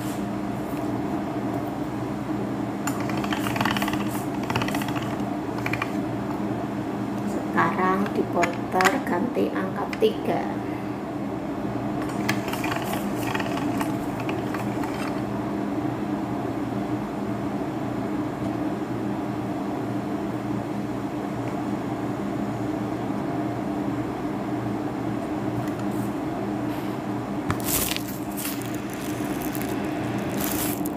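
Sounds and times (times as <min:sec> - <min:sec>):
pasta roller machine humming: 0:00.0 - 0:30.9
dough clicking and rustling: 0:02.8 - 0:06.4, 0:12.0 - 0:15.3, 0:27.5 - 0:30.9.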